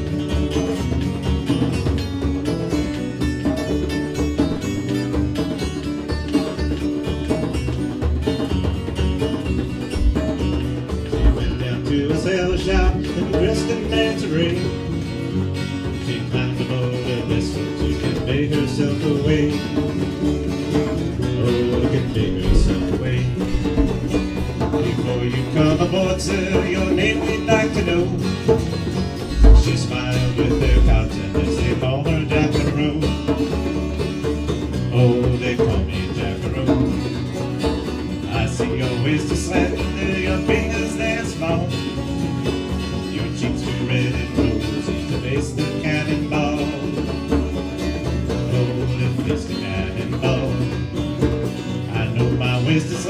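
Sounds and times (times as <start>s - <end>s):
upright bass: 0.0s - 7.9s, 8.7s - 34.2s
hand drum beat: 0.0s - 15.0s, 17.2s - 53.0s
acoustic guitars strumming: 0.0s - 53.0s.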